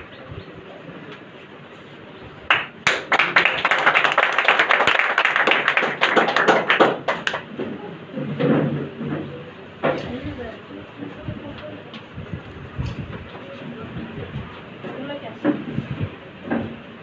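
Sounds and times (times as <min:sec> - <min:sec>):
voices talking: 0:00.0 - 0:04.2, 0:07.4 - 0:16.4
crowd applauding: 0:02.5 - 0:07.6.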